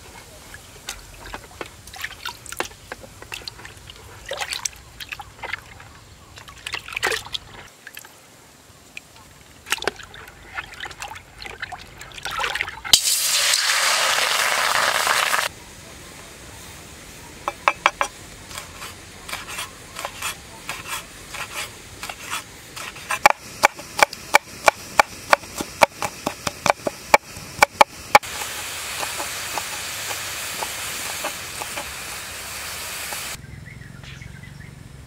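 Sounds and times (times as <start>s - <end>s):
steady hiss: 12.9s - 33.4s.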